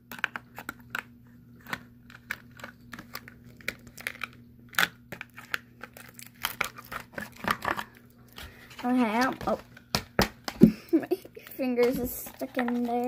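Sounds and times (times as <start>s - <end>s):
faint steady hum: 0.0s - 13.0s
plastic crinkling: 0.0s - 13.0s
scissors snipping plastic: 0.1s - 8.0s.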